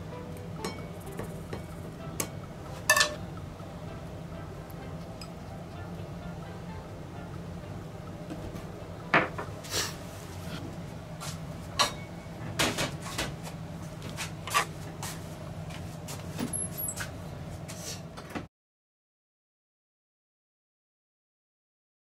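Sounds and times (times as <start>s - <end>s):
steady low hum: 0.0s - 17.8s
utensils and dishes clinking: 0.6s - 3.2s, 11.8s - 13.3s.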